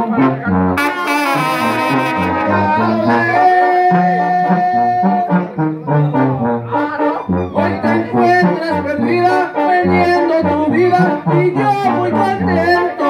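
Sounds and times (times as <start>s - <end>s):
brass band playing: 0.0s - 13.0s
long high brass note: 0.5s - 5.6s.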